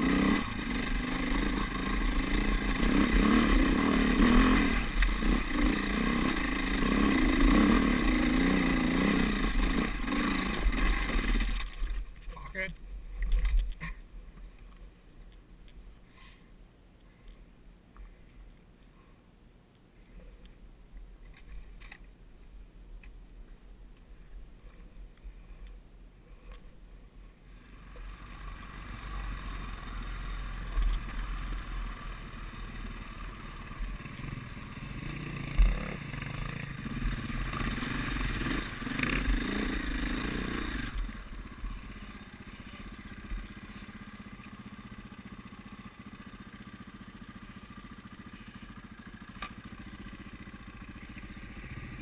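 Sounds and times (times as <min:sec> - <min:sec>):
motorcycle engines: 0:00.0 - 0:14.0, 0:27.4 - 0:52.0
faint clicks: 0:27.6 - 0:29.2, 0:29.8 - 0:31.8, 0:33.8 - 0:34.4, 0:35.6 - 0:41.9, 0:42.6 - 0:45.2, 0:47.1 - 0:50.2.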